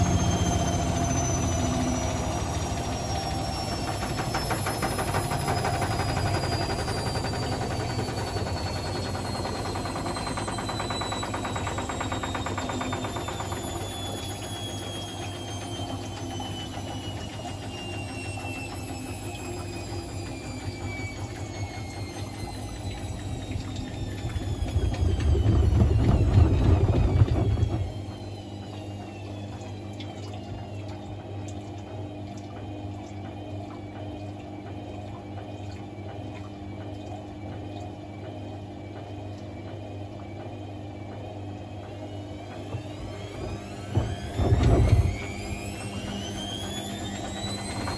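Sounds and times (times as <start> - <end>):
washing machine drum rumbling: 0.0 - 28.5, 42.4 - 47.9
washing machine motor whine: 0.0 - 47.9.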